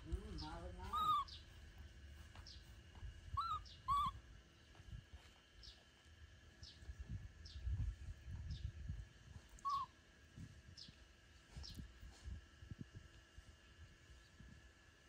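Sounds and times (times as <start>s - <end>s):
faint bird chirp: 0.1s - 4.8s, 9.5s - 9.9s
baby monkey cooing: 0.8s - 1.4s, 3.4s - 4.2s, 9.5s - 9.9s.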